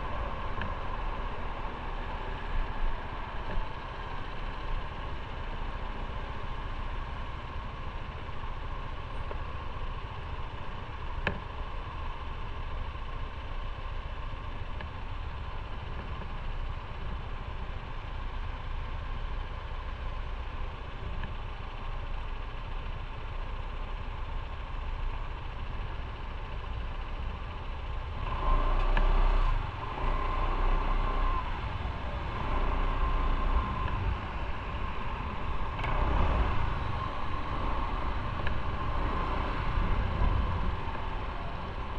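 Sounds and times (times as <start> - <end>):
motorcycle engine running: 0.0 - 41.9.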